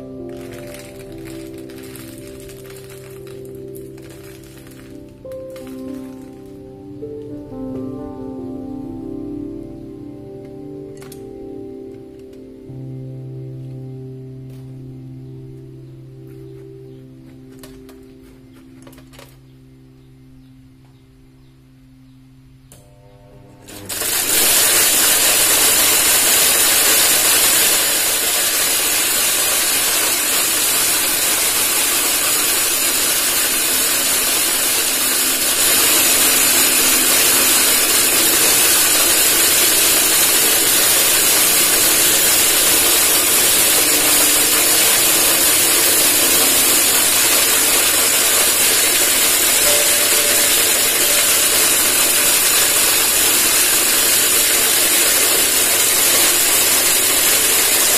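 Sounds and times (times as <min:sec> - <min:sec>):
corn grinder grinding: 0:00.0 - 0:06.7, 0:22.8 - 0:57.9.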